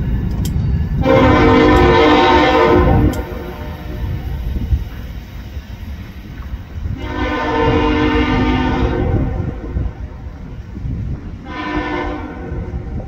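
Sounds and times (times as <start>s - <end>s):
moving train rumble: 0.0s - 13.0s
locomotive horn blast: 1.0s - 4.1s, 7.0s - 10.0s, 11.4s - 13.0s.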